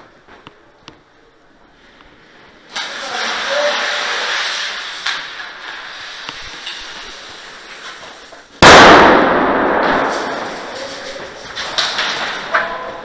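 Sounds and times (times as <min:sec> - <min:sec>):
very loud bang: 0:08.6 - 0:11.4.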